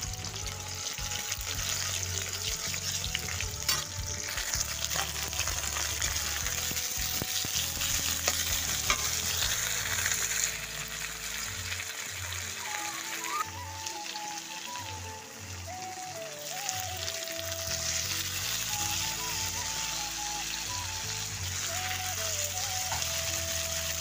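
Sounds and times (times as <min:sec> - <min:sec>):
pork sizzling in hot oil: 0:00.0 - 0:24.0
metal spatula scraping a wok: 0:01.6 - 0:11.4.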